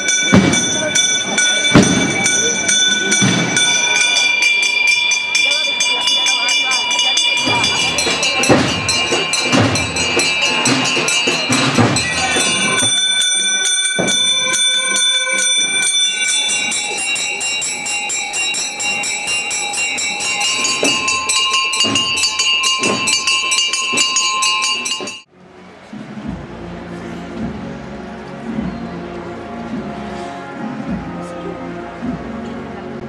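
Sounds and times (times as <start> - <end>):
hand bells pealing: 0.0 - 25.3.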